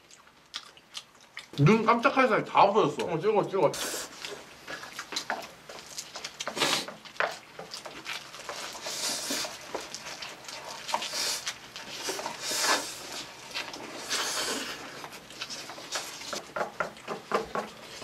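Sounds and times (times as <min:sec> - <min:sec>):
chewing and smacking: 0:00.0 - 0:02.2, 0:04.1 - 0:18.0
slurping food: 0:03.8 - 0:05.1, 0:06.3 - 0:07.1, 0:08.0 - 0:16.4.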